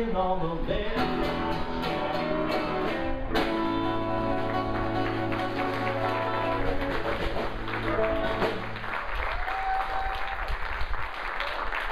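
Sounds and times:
small band playing final chord: 1.0s - 9.2s
audience applause: 4.4s - 11.9s.

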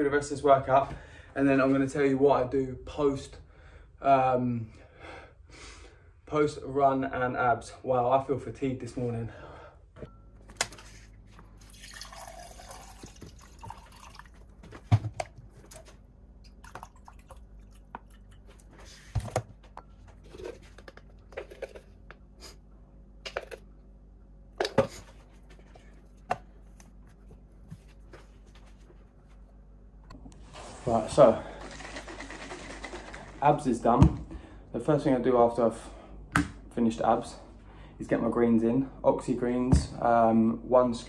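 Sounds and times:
water pouring into plastic bottle: 11.6s - 14.4s.

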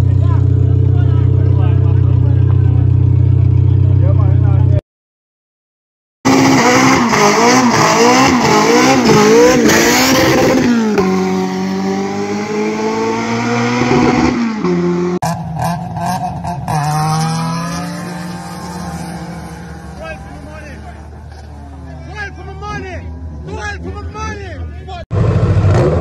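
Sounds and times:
drag car engine revving: 6.3s - 24.4s.

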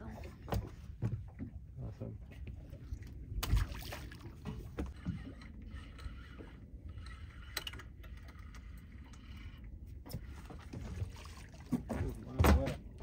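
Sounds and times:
water lapping against boat hull: 0.0s - 13.0s
fish splashing into water: 3.4s - 4.4s.

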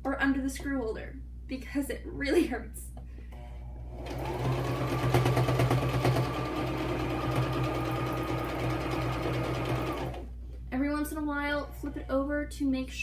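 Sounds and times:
sewing machine stitching: 3.9s - 10.3s.

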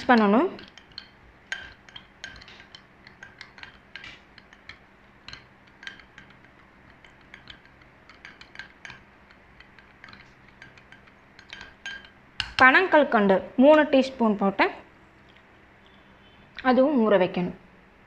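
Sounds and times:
metal spoon clinking in glass bowl: 0.0s - 12.8s.

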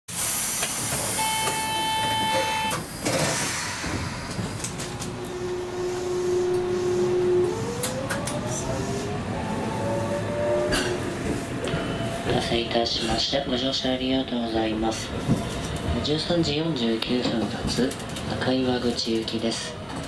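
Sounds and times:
tram motor whine: 0.5s - 13.0s
beeping buzzer: 1.2s - 2.8s.

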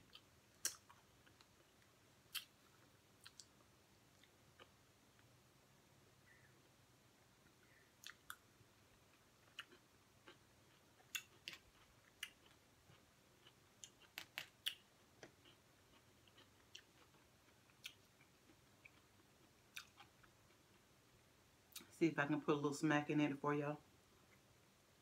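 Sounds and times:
chewing clicks and smacks: 0.1s - 1.7s, 3.2s - 3.6s, 8.0s - 8.4s, 9.4s - 20.8s.

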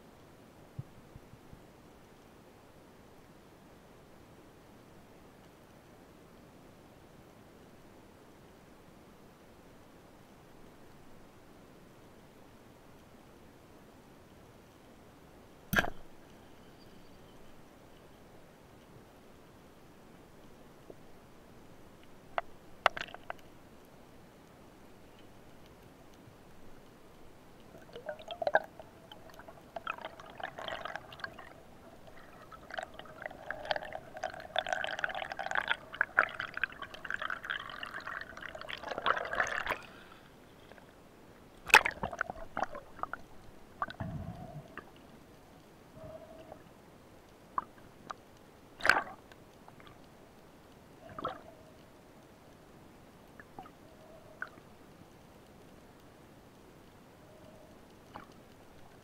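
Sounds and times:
water gurgling underwater: 27.7s - 40.1s, 41.7s - 45.0s, 48.8s - 49.2s, 51.0s - 51.7s.

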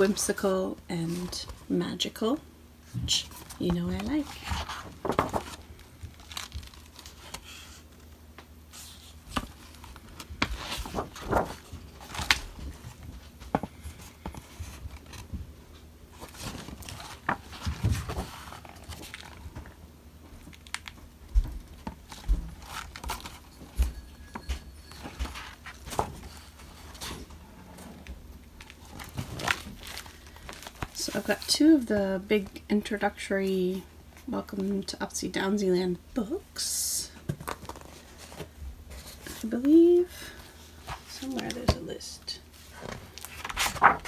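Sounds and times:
book pages rustling: 3.1s - 8.1s, 8.7s - 15.4s, 16.1s - 19.7s, 21.6s - 27.8s, 28.6s - 31.9s, 37.3s - 41.9s, 42.5s - 44.0s.

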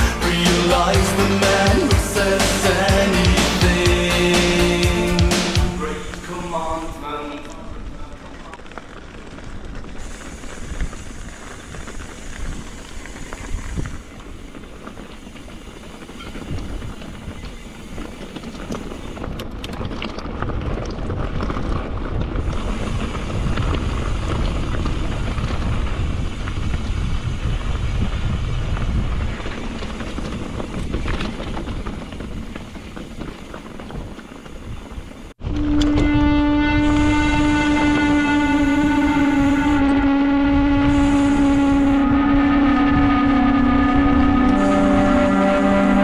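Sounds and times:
wind rushing over microphone: 3.7s - 46.0s
bike clicks and rattles: 7.3s - 35.4s.

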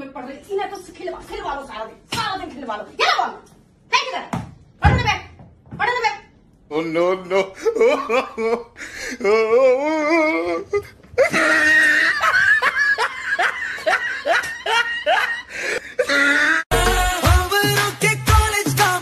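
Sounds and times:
person laughing loudly: 7.3s - 16.6s
pop music with bass beat: 16.7s - 19.0s.

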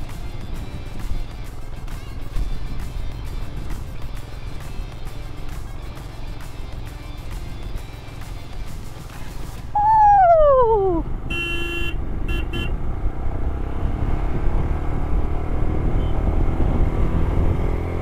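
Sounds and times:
motorcycle engine rumble: 0.0s - 18.0s
tone sliding downward: 9.8s - 11.1s
vehicle horn toots: 11.3s - 12.8s, 16.0s - 16.3s.

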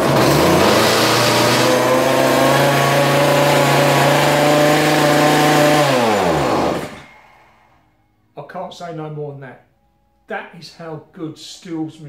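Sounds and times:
small two-stroke engine running: 0.0s - 7.1s.

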